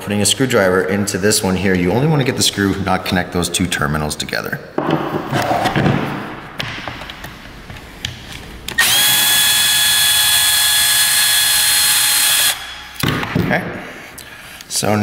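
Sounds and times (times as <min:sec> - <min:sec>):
cordless drill motor whining: 0:08.7 - 0:12.7.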